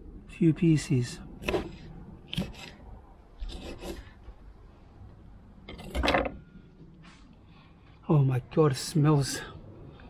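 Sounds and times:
knife cutting on wooden board: 1.4s - 2.8s, 3.4s - 4.1s.

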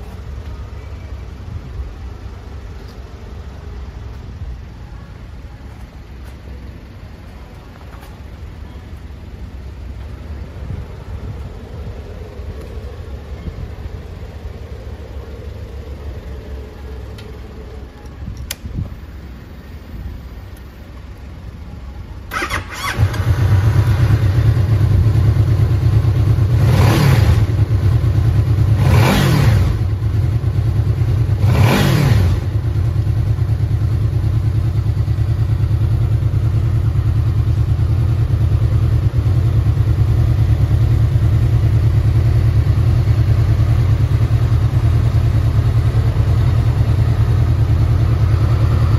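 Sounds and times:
motorcycle engine starting and revving: 22.0s - 48.9s.

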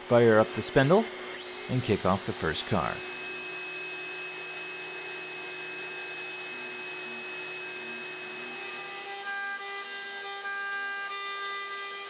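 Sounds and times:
router spindle whining: 0.0s - 12.0s.

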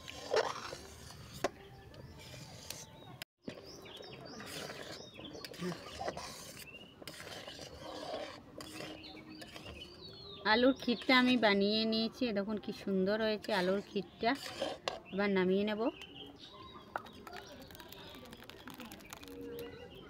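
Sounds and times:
metal spatula scraping metal pot: 0.0s - 3.0s, 4.3s - 10.1s, 13.2s - 15.2s.

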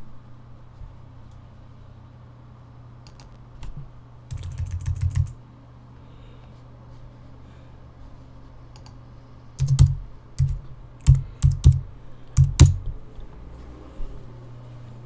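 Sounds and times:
steady low hum: 0.0s - 15.0s
keyboard typing: 3.0s - 3.4s, 4.3s - 5.4s, 8.8s - 9.0s, 9.6s - 12.9s.

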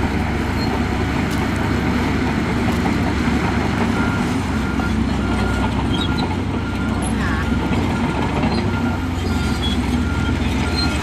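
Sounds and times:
diesel machinery rumbling: 0.0s - 11.0s.

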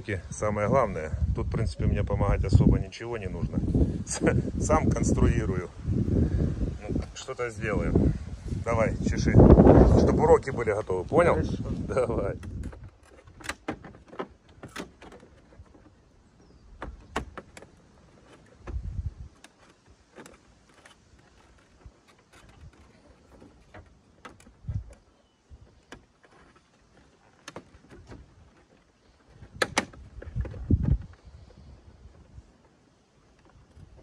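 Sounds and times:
plastic parts clicking and knocking: 12.4s - 16.0s, 16.7s - 31.2s.

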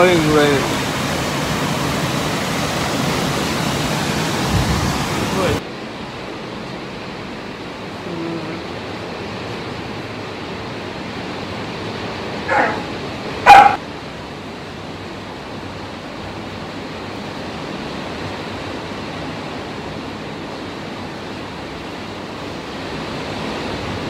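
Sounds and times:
pouring rain: 0.0s - 24.0s
dog barking: 12.4s - 13.8s.

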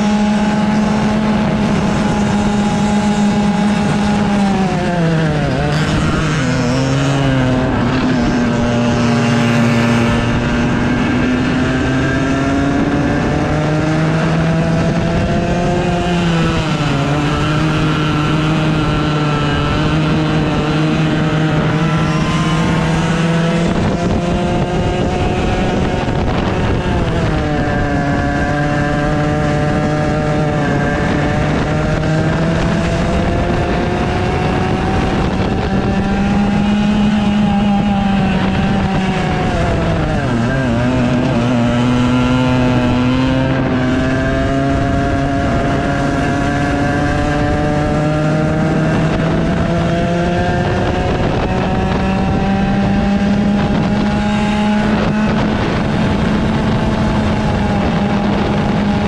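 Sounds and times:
go-kart engine: 0.0s - 59.0s
wind rush: 0.0s - 59.0s.

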